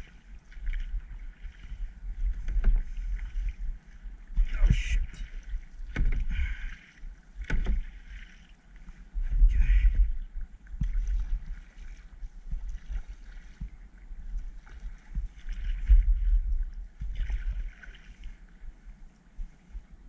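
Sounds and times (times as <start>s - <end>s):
paddle splashing in water: 0.0s - 19.0s
gusty low rumble: 8.9s - 11.6s, 13.6s - 17.6s.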